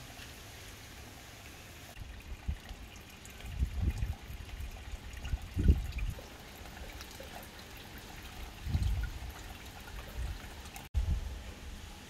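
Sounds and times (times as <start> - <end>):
water trickling: 0.0 - 10.9
rain pattering on stones and water: 1.9 - 10.9.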